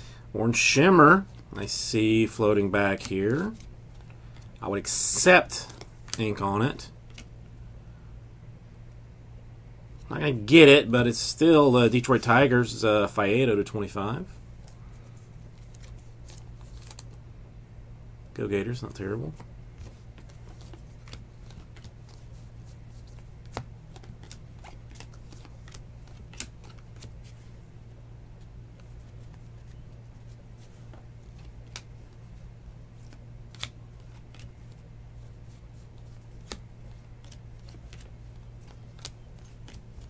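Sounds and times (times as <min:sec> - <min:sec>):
steady low hum: 0:00.0 - 0:40.0
cards clicking and tapping: 0:23.1 - 0:27.1, 0:36.0 - 0:40.0.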